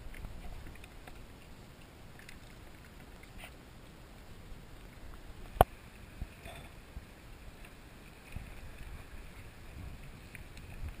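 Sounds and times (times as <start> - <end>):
faint water wash: 0.0 - 11.0
wind on microphone: 8.2 - 11.0.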